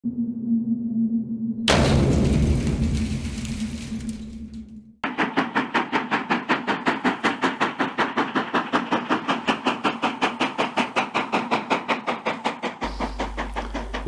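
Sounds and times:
steam locomotive exhaust chuffing: 5.0 - 14.0.

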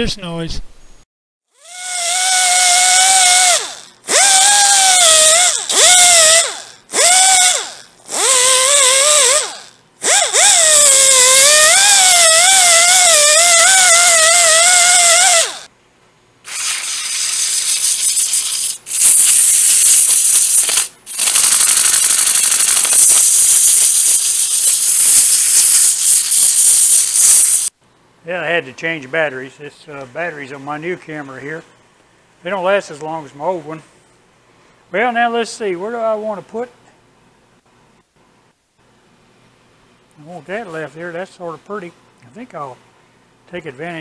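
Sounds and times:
pneumatic rotary tool whining: 1.6 - 15.7, 16.4 - 27.7
loud steady hiss: 16.4 - 27.8.

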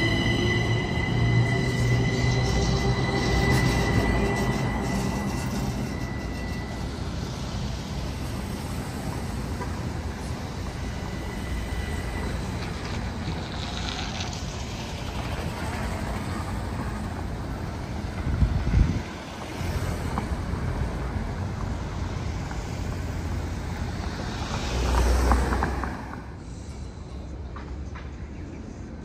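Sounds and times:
traffic noise: 0.0 - 29.0
wind buffeting microphone: 18.1 - 19.2.

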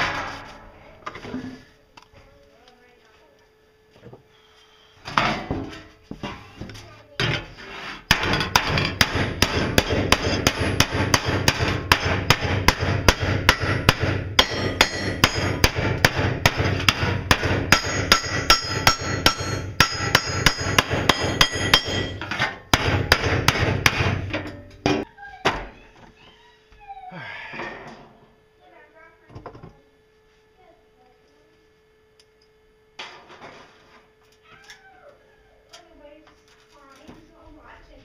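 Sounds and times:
hammer striking steel sheet: 8.1 - 25.0.

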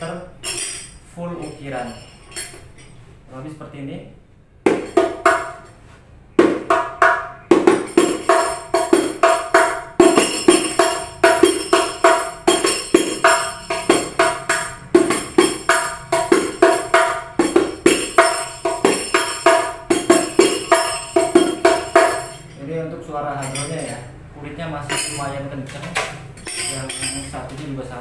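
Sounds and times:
metal jingles rattling: 0.4 - 3.0, 7.8 - 22.7, 23.3 - 24.1, 24.8 - 25.4, 26.2 - 27.6
frame drum played by hand: 4.7 - 5.6, 6.4 - 22.4.

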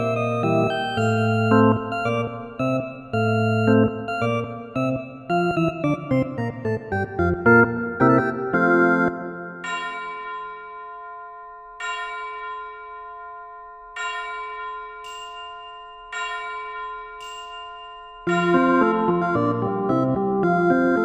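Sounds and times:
slow bell-like chime music: 0.0 - 6.2, 9.0 - 19.6.

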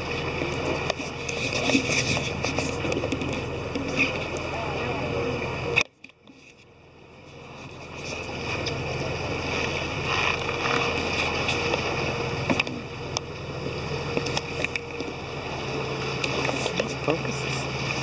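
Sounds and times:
boat engine humming: 0.0 - 18.0
water noise: 0.0 - 18.0.

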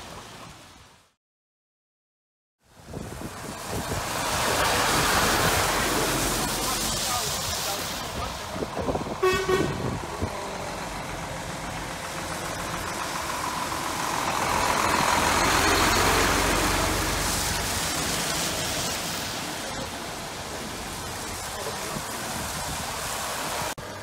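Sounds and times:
tyres on wet road: 0.0 - 1.2, 2.6 - 24.0
truck driving past: 8.6 - 20.0.

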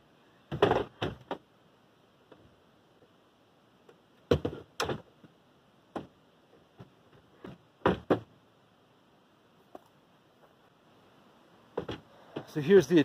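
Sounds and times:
hollow wooden knocks and bumps: 0.5 - 1.5, 4.3 - 8.4, 11.7 - 12.5.

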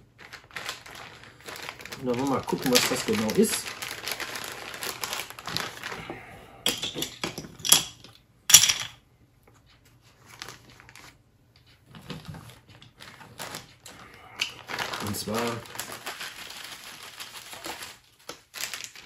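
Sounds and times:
plastic bags crinkling: 0.0 - 6.1, 12.0 - 19.0.

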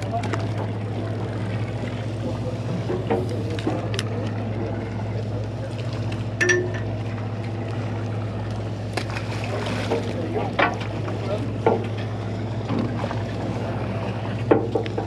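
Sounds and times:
boat motor droning: 0.0 - 15.0.

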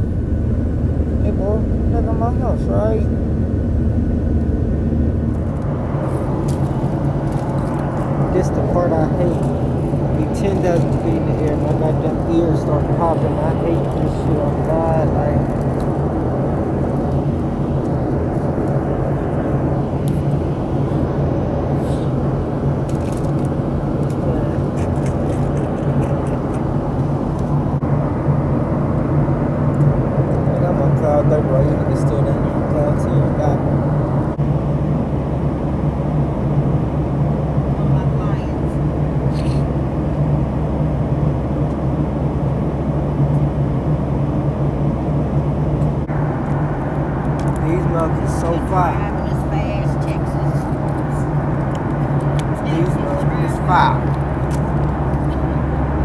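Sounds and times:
rushing air: 0.0 - 30.5
airliner engine drone: 0.0 - 56.0
low hum: 0.0 - 56.0.

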